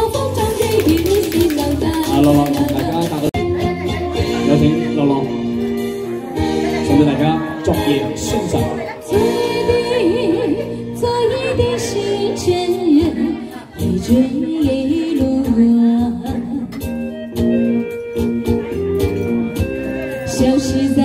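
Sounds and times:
woman singing pop song: 0:00.0 - 0:04.5, 0:08.4 - 0:16.9, 0:20.2 - 0:21.0
amplified instrumental backing: 0:00.0 - 0:21.0.

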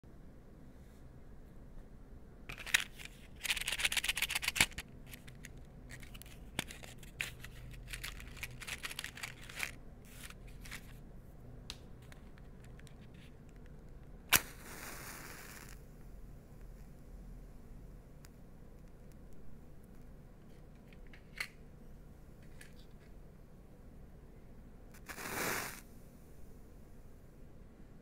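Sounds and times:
matchbox drawer sliding: 0:02.5 - 0:11.0
matchbox rattling: 0:02.5 - 0:11.0
match striking and hissing: 0:14.3 - 0:15.8, 0:25.0 - 0:25.9.

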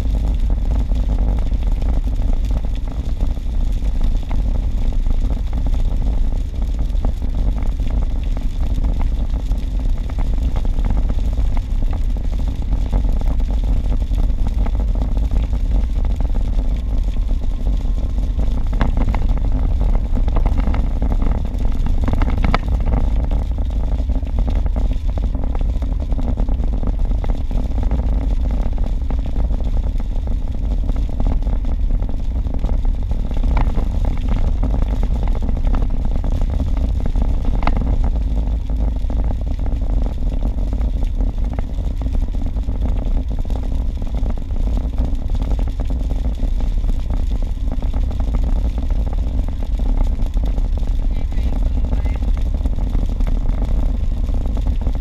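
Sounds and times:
car tyres and engine rumble: 0:00.0 - 0:55.0
faint ticks: 0:06.9 - 0:26.6, 0:32.6 - 0:38.9.

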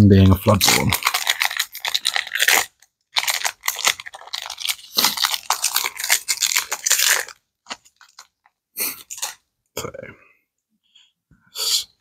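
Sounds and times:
foil wrapper crinkling: 0:00.6 - 0:09.4.

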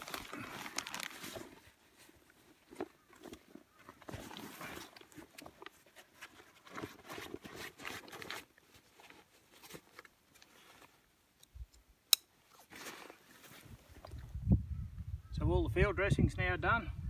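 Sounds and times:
backpack and plastic bag rustling: 0:00.0 - 0:11.1, 0:12.5 - 0:14.4.

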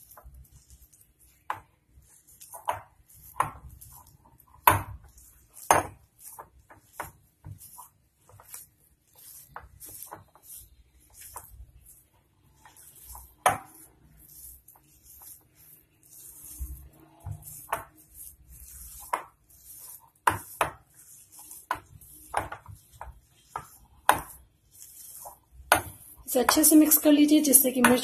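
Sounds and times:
hand squeezing thick mixture: 0:00.0 - 0:28.0.

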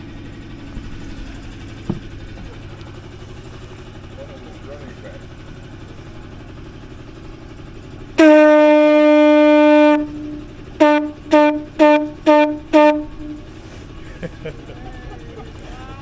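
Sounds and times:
conch shell horn blasts: 0:08.2 - 0:13.6.

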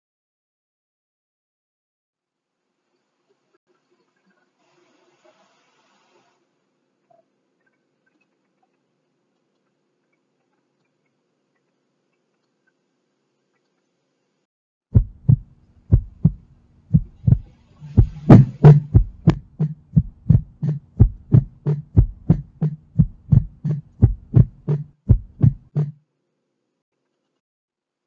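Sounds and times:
steady low hum: 0:15.0 - 0:25.9
heartbeat thumps: 0:15.0 - 0:26.0.

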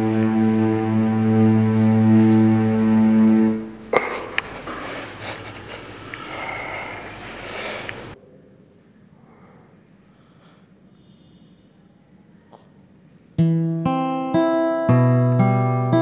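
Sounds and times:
low drone of bowed strings: 0:00.0 - 0:03.8.

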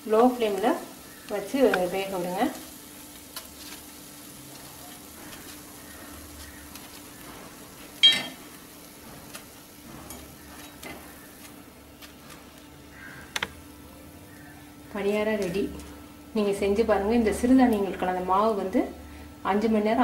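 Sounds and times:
oil sizzling in a pan: 0:00.0 - 0:20.0
ringing metallic clink: 0:08.0 - 0:08.4.

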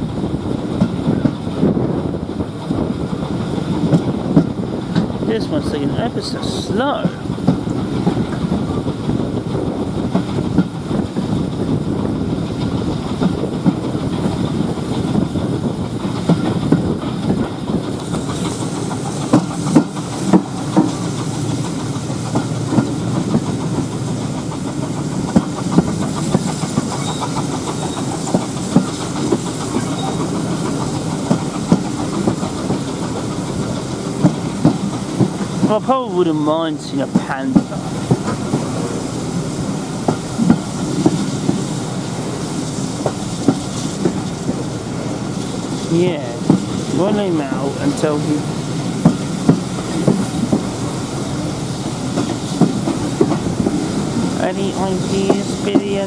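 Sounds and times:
steam hissing: 0:00.0 - 0:56.0
train wheels rumbling on rails: 0:00.0 - 0:56.0.

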